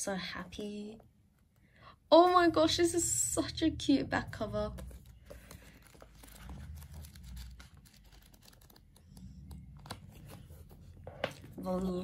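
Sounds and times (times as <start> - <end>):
book pages flipping: 4.6 - 12.0
books ticking against each other: 4.8 - 10.5.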